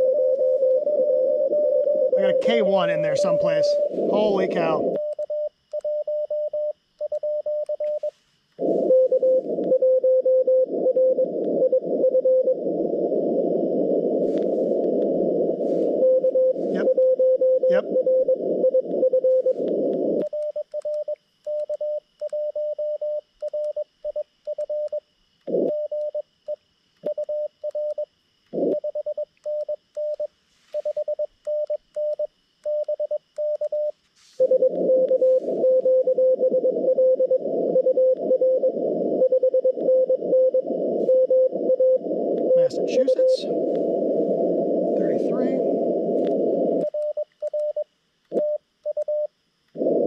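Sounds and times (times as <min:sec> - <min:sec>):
overlapping morse code signals: 0:00.0 - 0:12.6, 0:13.9 - 0:24.9, 0:28.6 - 0:49.3
morse code sidetone: 0:00.0 - 0:26.2, 0:27.0 - 0:50.0
radio band noise: 0:01.4 - 0:05.0, 0:07.9 - 0:09.8, 0:10.6 - 0:20.2, 0:34.3 - 0:39.2, 0:40.0 - 0:46.9.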